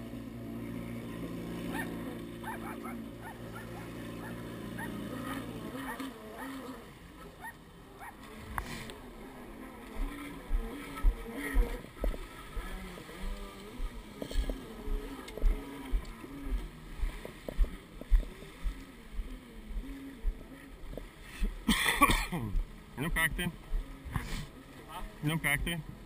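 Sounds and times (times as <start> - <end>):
jet ski engine running: 0.0 - 26.0.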